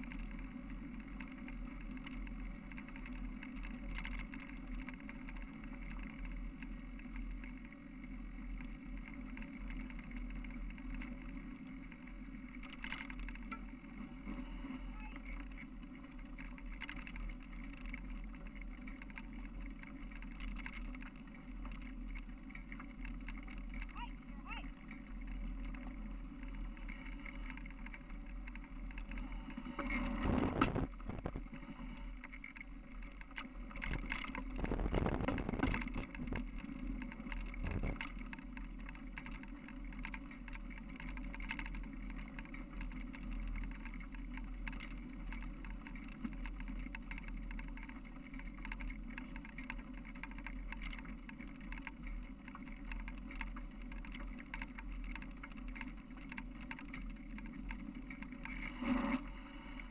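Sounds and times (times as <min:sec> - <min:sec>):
constant low hum: 0:00.0 - 0:59.9
camera handling and wind rumble: 0:29.8 - 0:31.6, 0:33.9 - 0:36.5.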